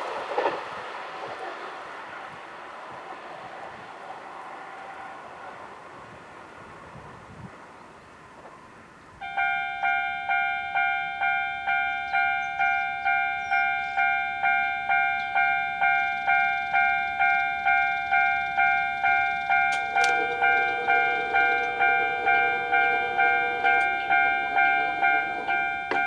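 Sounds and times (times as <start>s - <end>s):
level crossing alarm ringing: 9.2s - 26.0s.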